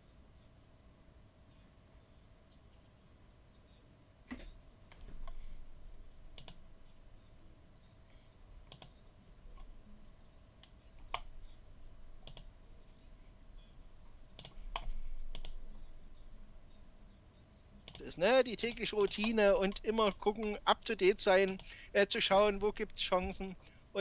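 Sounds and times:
keyboard and mouse clicks: 6.3 - 6.6, 8.7 - 9.7, 12.2 - 12.5, 14.4 - 15.6, 17.9 - 20.6, 21.4 - 21.7.

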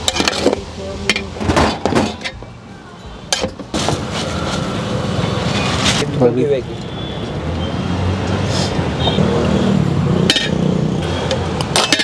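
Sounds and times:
ladle clinking on metal pot: 10.3 - 10.6, 11.7 - 12.0.

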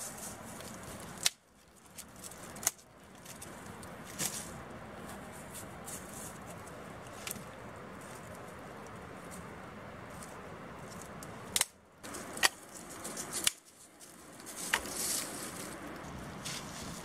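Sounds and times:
background hiss: 0.0 - 17.0
twigs crackling in fire: 0.0 - 17.0.

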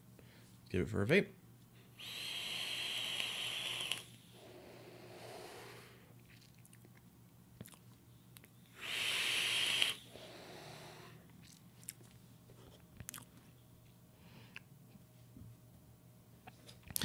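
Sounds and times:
hissing draw through atomizer: 2.0 - 6.1, 8.7 - 11.2
soft exhale of vapour: 2.0 - 6.1, 8.7 - 11.2
lip smacks: 6.3 - 8.6, 11.3 - 12.2, 12.9 - 13.4.

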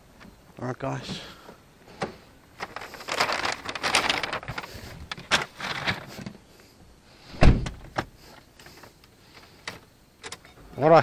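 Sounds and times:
rustling and crinkling: 1.9 - 6.8.

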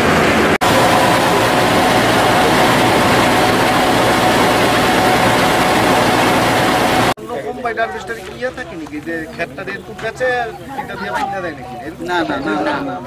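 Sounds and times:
combine harvester running: 0.0 - 7.2
grain pouring from auger: 0.0 - 7.2.

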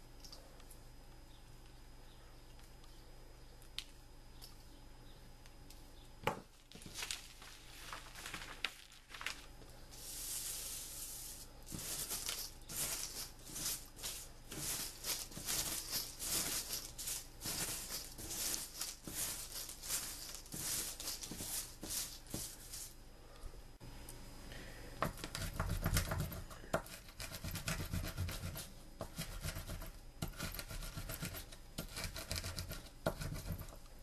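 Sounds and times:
matchsticks rustling on paper: 6.7 - 23.0, 25.1 - 33.8.

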